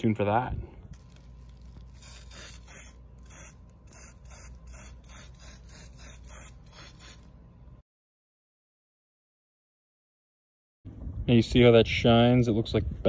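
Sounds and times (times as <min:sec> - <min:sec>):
aerosol spray paint hissing: 0:01.9 - 0:07.3.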